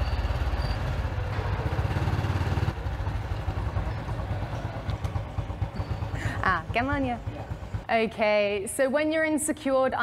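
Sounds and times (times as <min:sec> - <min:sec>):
small motorbike engine running: 0:00.0 - 0:07.9.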